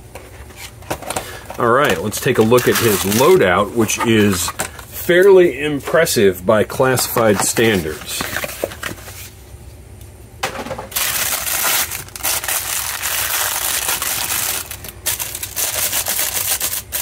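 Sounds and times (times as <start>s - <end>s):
paper wrapper crinkling: 1.6s - 4.8s, 10.9s - 17.0s.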